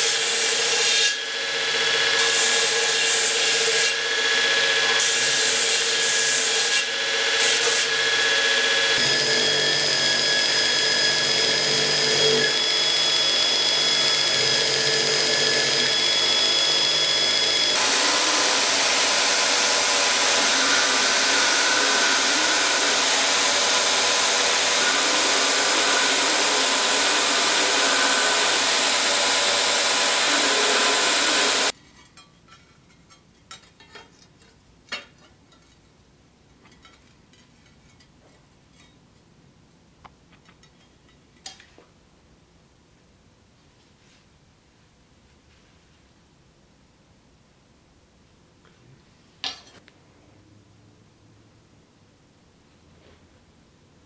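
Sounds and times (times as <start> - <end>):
belt grinder grinding steel: 0.0 - 31.7
machine whine: 8.1 - 31.7.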